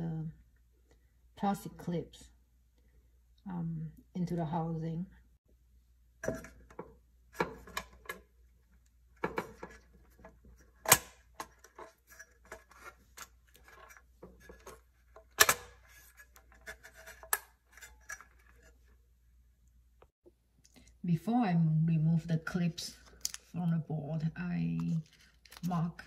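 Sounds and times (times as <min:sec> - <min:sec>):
plastic clips snapping: 0:15.4 - 0:15.8.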